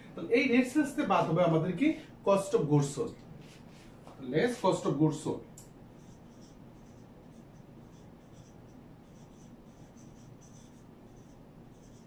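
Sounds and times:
low room hiss: 0.0s - 12.0s
marker squeaking on whiteboard: 6.0s - 12.0s.

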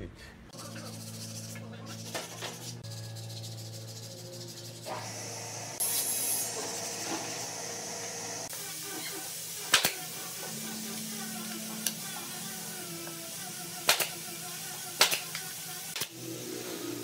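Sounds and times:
nail gun shots: 9.7s - 10.0s, 13.8s - 14.2s, 15.0s - 15.4s, 16.0s - 16.2s.

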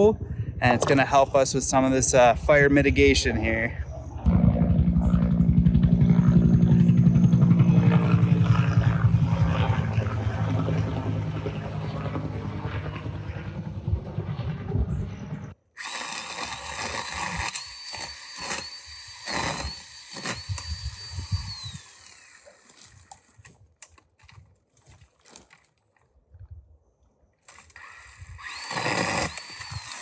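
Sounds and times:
helicopter rotor pulsing: 0.0s - 23.1s
pole saw whining: 15.8s - 23.3s, 27.5s - 30.0s.

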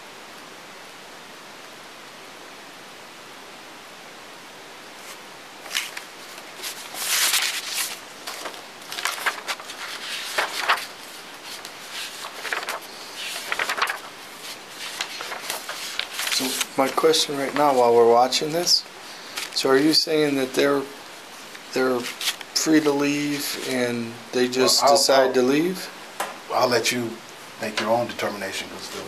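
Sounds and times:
steady hiss: 0.0s - 29.0s
papers rustling and crackling: 5.0s - 18.4s, 19.3s - 19.7s, 21.4s - 23.8s.

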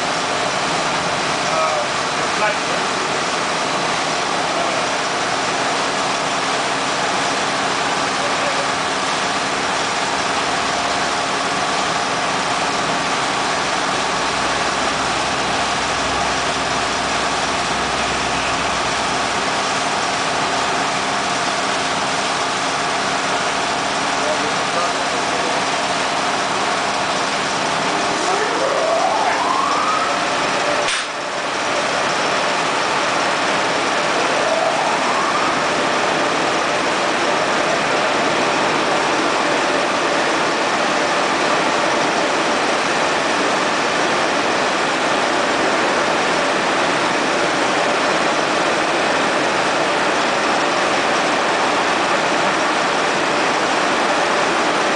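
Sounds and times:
short rising whine: 13.2s - 20.7s, 27.6s - 37.9s.

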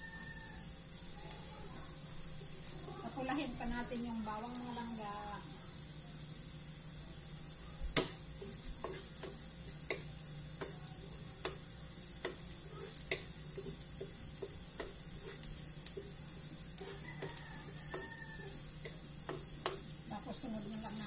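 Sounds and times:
garlic sizzling in oil: 0.0s - 21.0s
wooden spatula knocking on wok: 7.9s - 10.8s, 11.4s - 11.6s, 12.2s - 16.2s, 16.8s - 19.9s.

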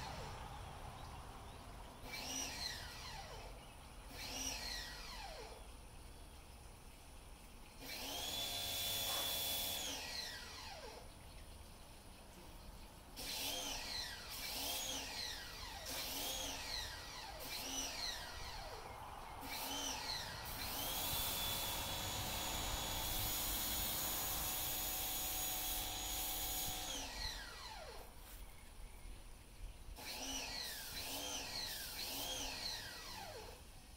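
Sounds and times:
electric power tool motor: 2.0s - 3.5s, 4.1s - 5.6s, 7.8s - 11.0s, 13.2s - 28.1s, 30.0s - 33.7s.

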